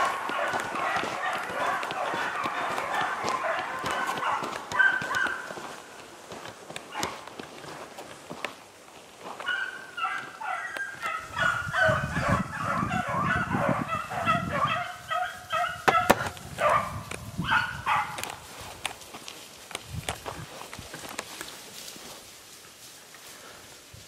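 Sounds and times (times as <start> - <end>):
hounds baying: 0.0 - 6.0, 6.8 - 7.3, 9.4 - 18.3.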